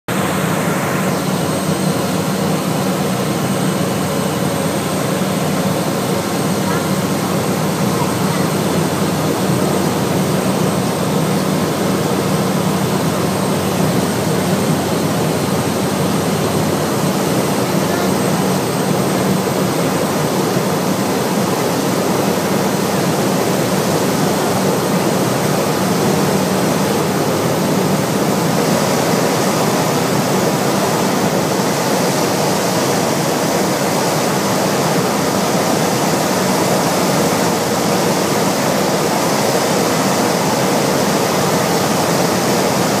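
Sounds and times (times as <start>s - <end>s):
propeller aircraft engine drone: 0.1s - 43.0s.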